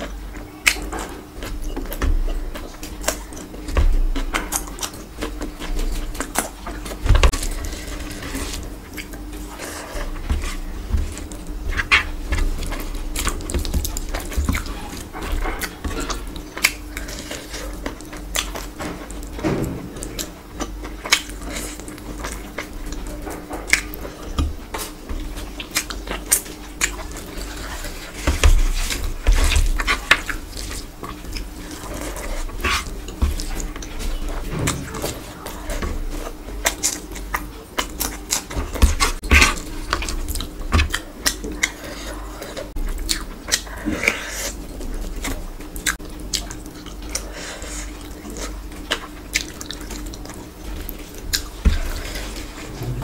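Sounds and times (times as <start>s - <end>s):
wet chewing: 0.0s - 53.0s.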